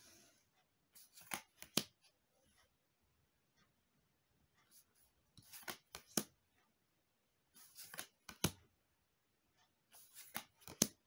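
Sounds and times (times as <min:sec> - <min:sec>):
cards sliding and snapping: 0:01.0 - 0:02.0, 0:05.4 - 0:06.3, 0:07.6 - 0:08.6, 0:10.0 - 0:11.0.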